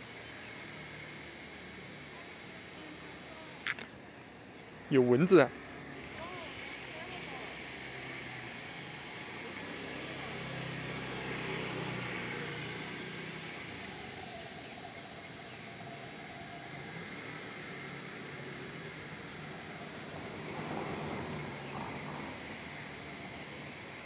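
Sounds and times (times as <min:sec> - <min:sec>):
road traffic: 0:00.0 - 0:24.0
vehicle passing: 0:04.8 - 0:14.6, 0:16.7 - 0:23.2.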